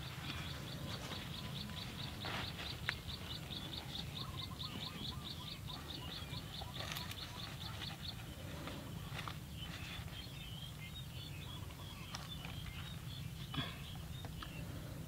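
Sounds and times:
leaves rustling: 0.0 - 3.9
bird chirping: 0.0 - 14.9.

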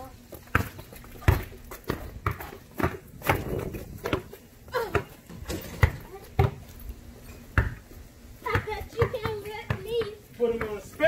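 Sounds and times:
basketball bouncing on plastic tiles: 8.5 - 11.0.

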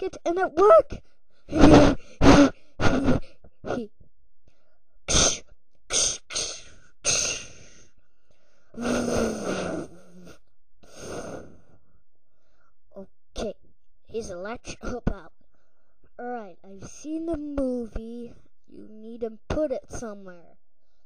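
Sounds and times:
breathy gasps: 6.5 - 12.8
person grunting: 8.8 - 10.2
person groaning: 8.8 - 10.3.

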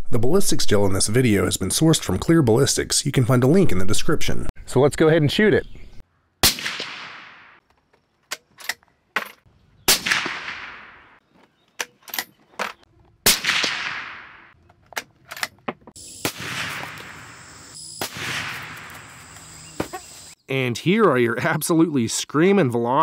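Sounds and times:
suppressed rifle shots echoing: 6.4 - 7.6, 9.9 - 11.2, 13.2 - 14.6, 16.2 - 17.2.

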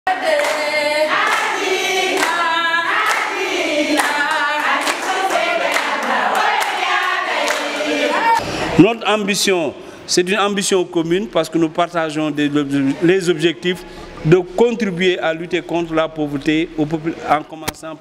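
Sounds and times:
women singing together: 0.1 - 8.4
hand claps: 0.4 - 1.5, 2.1 - 2.4.

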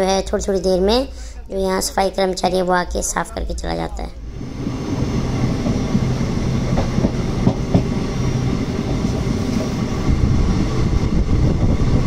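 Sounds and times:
train wheels rumbling on rails: 3.6 - 12.0
short knocks: 6.7 - 8.0.

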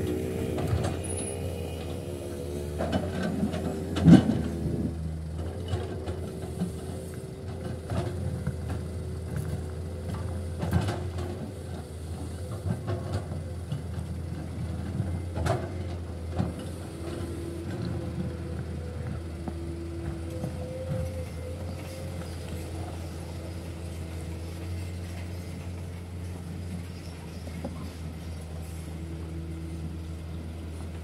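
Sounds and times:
hydraulic whine: 0.0 - 5.2, 16.5 - 25.8
excavator diesel engine drone: 0.0 - 31.0.

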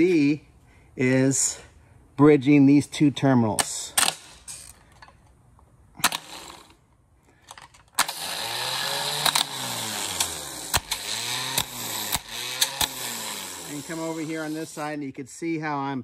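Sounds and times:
starter motor whirring: 6.1 - 6.8, 8.0 - 14.8
sharp clicks: 9.2 - 9.6.

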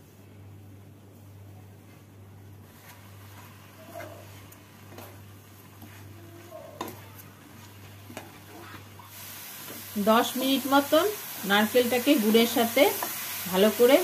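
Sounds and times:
spatula scraping a pan: 2.7 - 9.1
sizzling hiss: 7.2 - 14.0.

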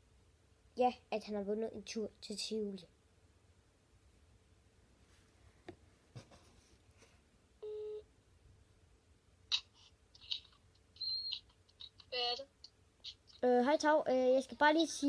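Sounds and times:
phone beep: 7.6 - 8.1.

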